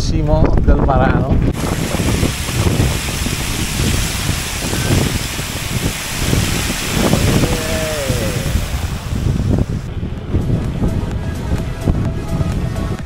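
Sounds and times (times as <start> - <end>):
wind buffeting microphone: 0.0 - 13.0
fountain water splashing: 1.5 - 9.9.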